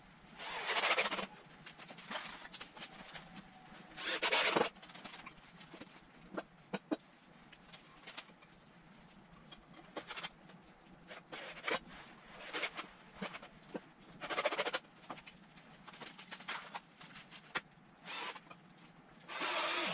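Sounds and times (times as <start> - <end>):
cordless drill driving screws: 4.0 - 4.7, 18.1 - 18.4, 19.3 - 19.9.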